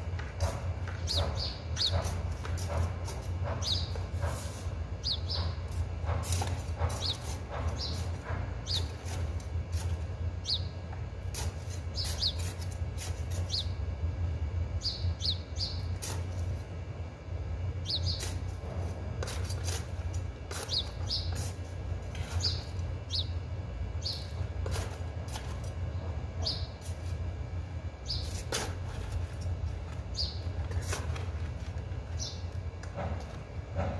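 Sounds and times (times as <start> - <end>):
steady low hum: 0.0 - 33.9
small birds chirping: 1.0 - 2.2, 3.6 - 4.3, 5.0 - 5.7, 6.8 - 9.2, 10.4 - 10.8, 11.8 - 13.8, 14.8 - 16.1, 17.8 - 18.4, 20.5 - 21.6, 22.2 - 24.4, 26.4 - 26.8, 28.0 - 28.5, 30.1 - 30.8, 32.2 - 32.5
trowel scraping soil in pots: 19.1 - 22.6, 24.6 - 25.6.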